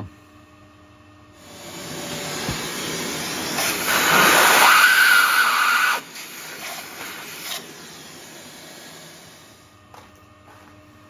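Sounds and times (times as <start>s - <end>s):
vacuum rushing and whistling: 1.5s - 9.6s.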